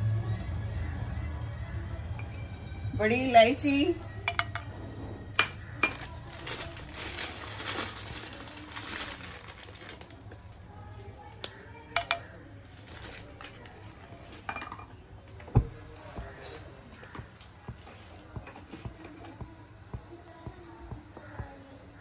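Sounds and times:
spices clicking into a pan: 0:11.4 - 0:12.4.

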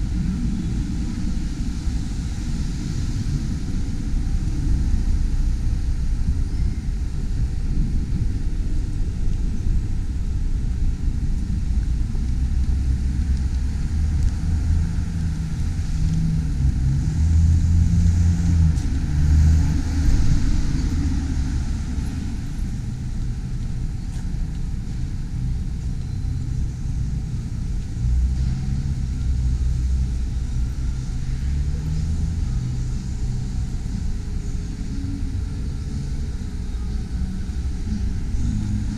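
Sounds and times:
traffic rumble: 0:00.0 - 0:38.9
passing car engine: 0:13.2 - 0:23.0.

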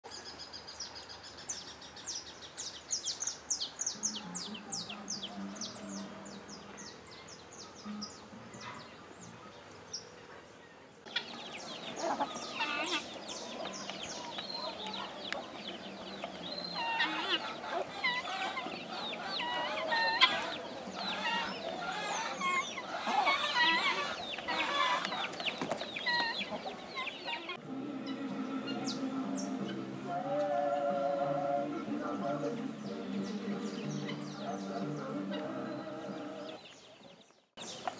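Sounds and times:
songbird singing: 0:00.0 - 0:37.9
chickens and turkeys clucking: 0:11.0 - 0:37.2.

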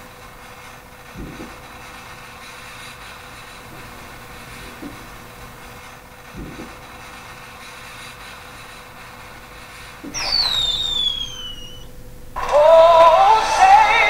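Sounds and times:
faint steady hiss: 0:00.0 - 0:14.0
cartoon falling whistle: 0:10.1 - 0:11.9
music with synthetic singing: 0:12.4 - 0:14.0.

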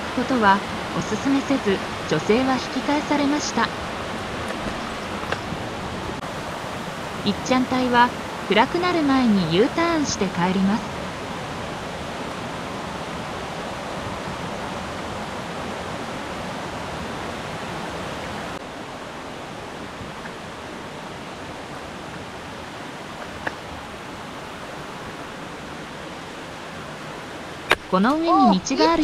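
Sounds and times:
mountain stream rushing: 0:00.0 - 0:29.0.

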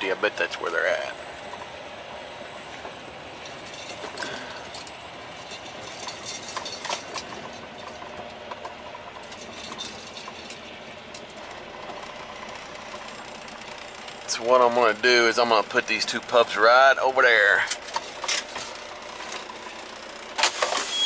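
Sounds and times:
diesel engine running low speed: 0:00.0 - 0:21.0
light clicks and rattles: 0:02.8 - 0:16.6.

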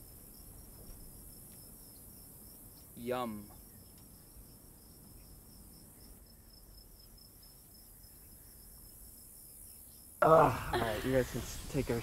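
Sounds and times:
crickets chirping: 0:00.0 - 0:12.0.

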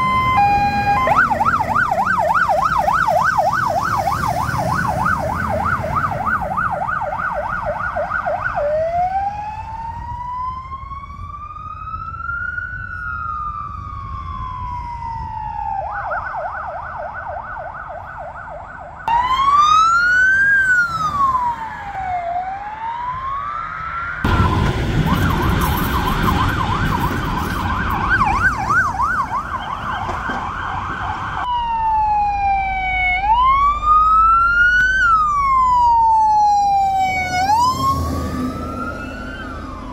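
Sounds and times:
emergency vehicle sirens: 0:00.0 - 0:39.9
heavy engine and road noise: 0:00.0 - 0:39.9.

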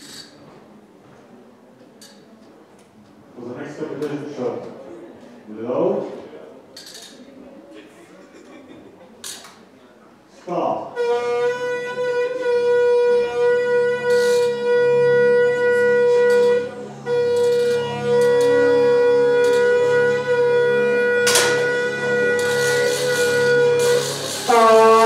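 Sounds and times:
long wind instrument note: 0:10.9 - 0:25.0.

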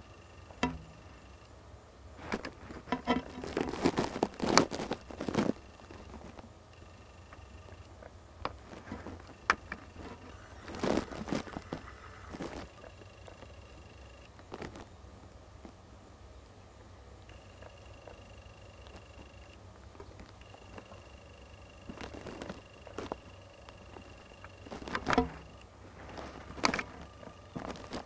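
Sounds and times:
dry leaves and twigs rustling: 0:02.2 - 0:06.9, 0:08.5 - 0:15.0, 0:18.6 - 0:28.0.

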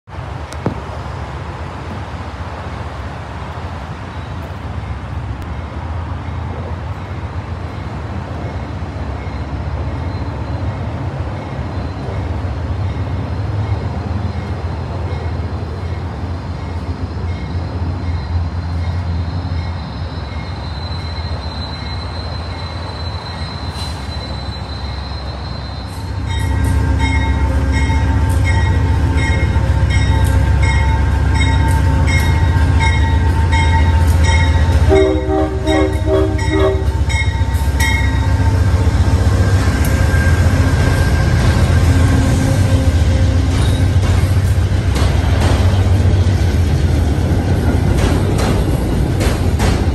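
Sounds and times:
diesel locomotive engine rumble: 0:00.0 - 0:49.9
locomotive bell ringing: 0:11.3 - 0:41.6.

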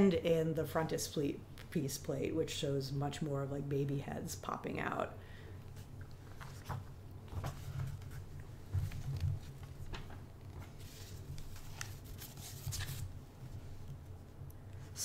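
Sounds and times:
steady low hum: 0:00.0 - 0:15.0
soft rustles: 0:05.7 - 0:15.0.

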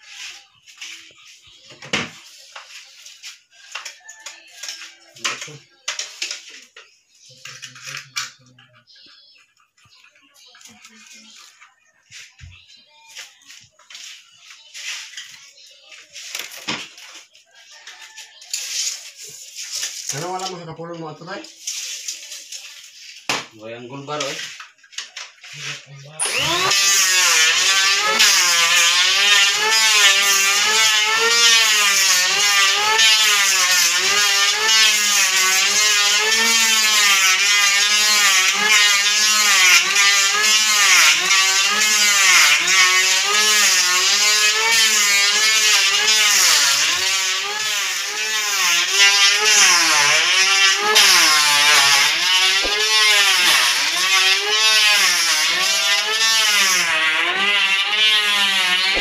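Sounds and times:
electric planer shaving wood: 0:25.7 - 0:59.0.

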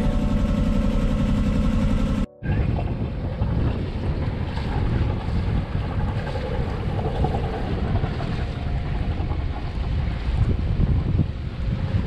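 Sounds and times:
water splashing against hull: 0:01.3 - 0:12.0
wind buffeting microphone: 0:02.4 - 0:12.0.

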